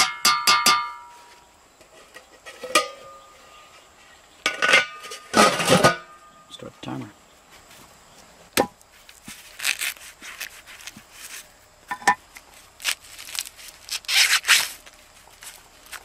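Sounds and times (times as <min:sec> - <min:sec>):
corn husks rustling and tearing: 0:08.8 - 0:16.0.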